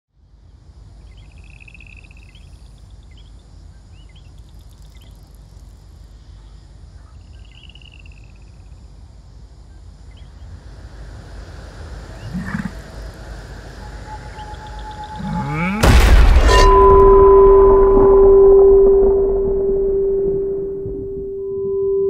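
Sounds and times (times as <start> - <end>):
insect trilling: 1.0 - 6.3, 9.6 - 17.4
low wind-like rumble: 8.8 - 22.0.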